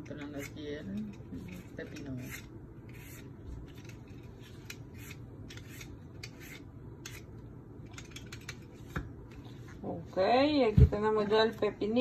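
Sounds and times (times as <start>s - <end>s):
peeler scraping cucumber skin: 0.0s - 4.0s, 4.6s - 7.3s.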